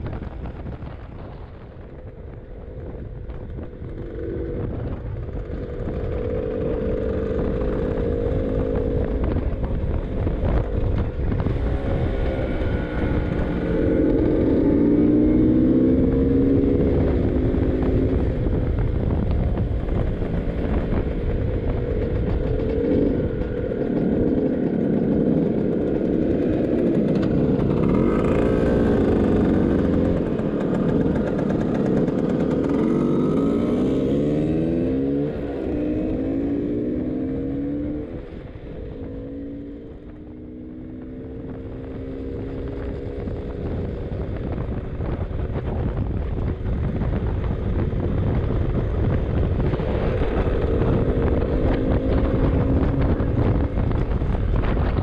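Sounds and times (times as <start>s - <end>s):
scooter two-stroke engine running: 13.2s - 35.9s, 37.6s - 55.0s.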